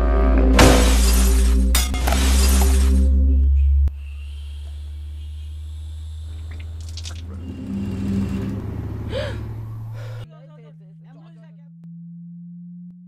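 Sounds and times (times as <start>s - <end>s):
low rumbling drone: 0.0s - 10.3s
faint higher tones: 1.1s - 10.2s.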